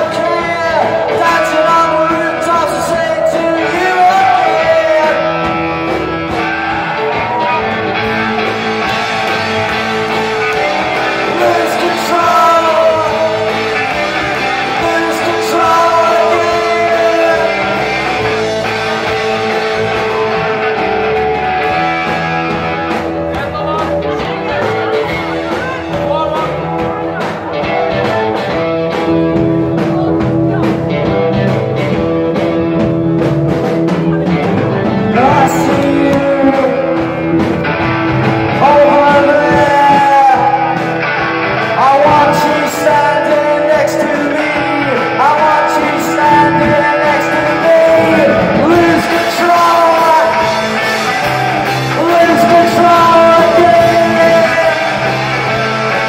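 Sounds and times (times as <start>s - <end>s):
man singing: 0.0s - 20.6s, 33.6s - 56.0s
live rock band playing: 0.0s - 56.0s.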